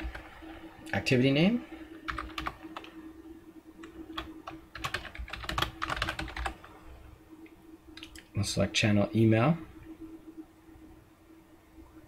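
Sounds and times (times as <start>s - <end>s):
faint steady hum: 0.0s - 12.0s
typing on computer keyboard: 2.1s - 2.9s, 3.8s - 6.6s.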